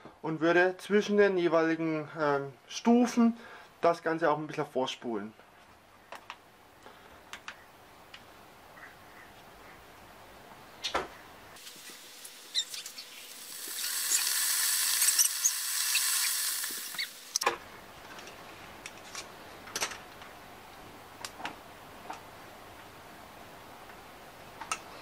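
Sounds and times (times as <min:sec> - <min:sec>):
electric kettle hissing and crackling: 0:11.6 - 0:19.0.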